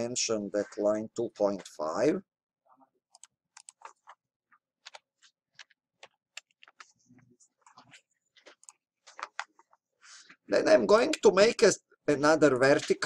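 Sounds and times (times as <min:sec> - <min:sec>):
mouse and keyboard clicks: 0:03.1 - 0:04.2.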